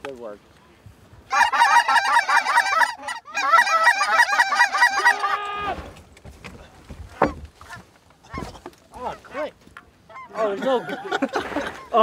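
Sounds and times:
goose call honks: 1.3 - 5.8.

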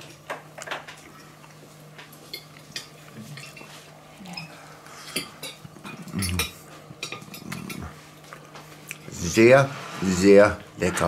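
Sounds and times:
cutlery clinking on a plate: 5.1 - 7.9
person humming mm: 6.0 - 6.5.

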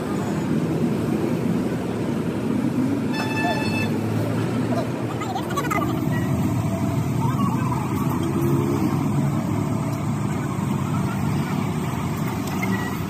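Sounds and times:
engine running: 4.1 - 13.0.

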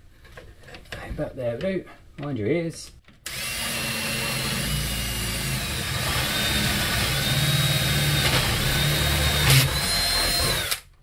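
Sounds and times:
cordless drill whining under load: 3.3 - 10.9.

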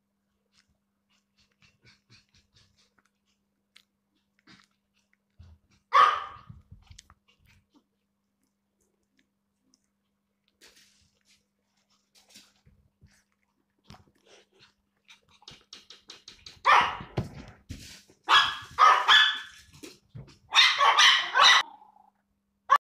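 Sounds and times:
small dogs barking: 5.4 - 6.6, 16.6 - 17.2, 18.3 - 19.7, 20.5 - 22.0.

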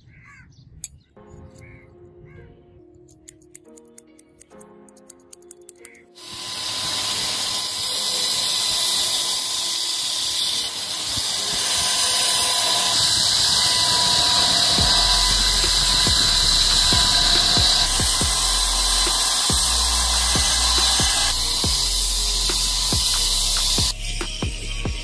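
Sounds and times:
belt grinder grinding steel: 6.2 - 25.0.

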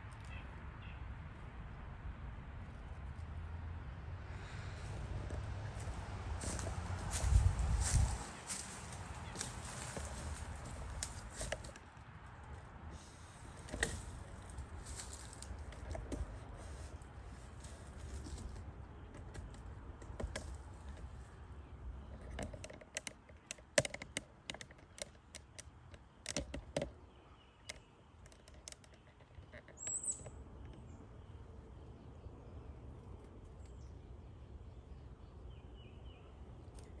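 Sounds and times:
sharp irregular clicks and taps: 22.1 - 27.0
high bird chirp: 29.4 - 31.1.

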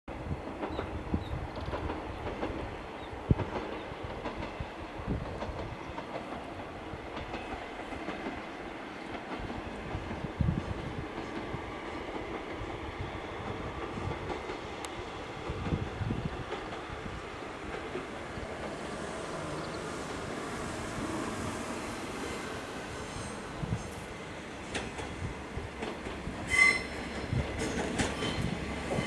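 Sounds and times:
diesel train engine rumbling: 0.1 - 29.0.

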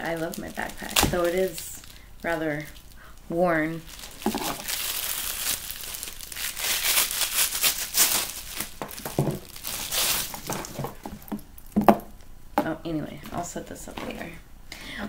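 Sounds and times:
plastic packaging crinkling: 0.0 - 11.8.

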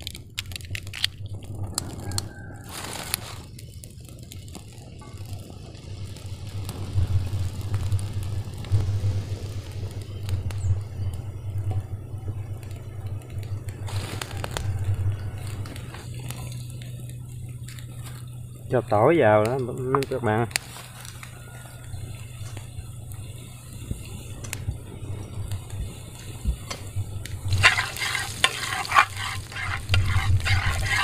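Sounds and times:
steady low rumble: 0.0 - 31.0.

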